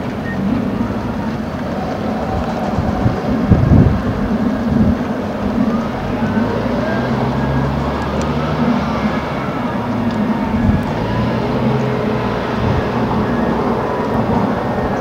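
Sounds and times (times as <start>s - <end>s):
heavy diesel machinery running: 0.0s - 15.0s.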